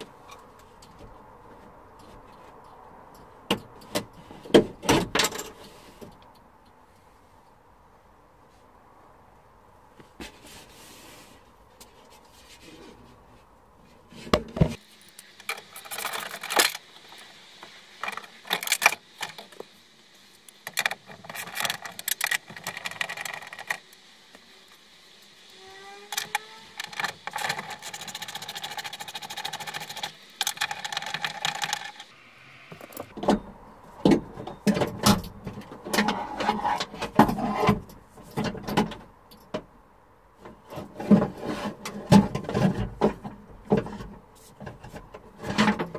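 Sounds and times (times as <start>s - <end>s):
rising squeak: 25.5s - 26.8s.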